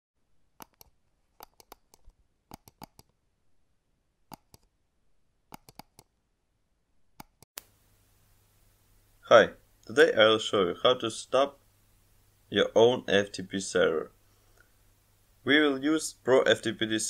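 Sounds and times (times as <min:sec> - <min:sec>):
faint sharp clicks: 0:07.2 - 0:07.8.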